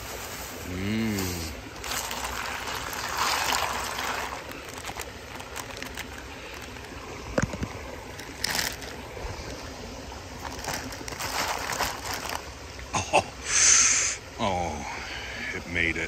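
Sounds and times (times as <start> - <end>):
river water running: 0.0 - 16.0
ice cubes clinking in plastic pan: 1.8 - 6.8, 8.2 - 8.9, 10.4 - 12.4
plastic bag crinkling: 1.8 - 9.6, 10.3 - 12.6.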